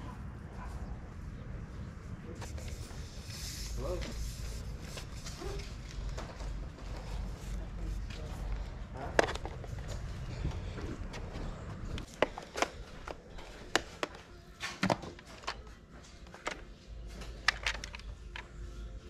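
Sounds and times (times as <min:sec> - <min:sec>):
items being handled clicking: 0:08.2 - 0:18.8.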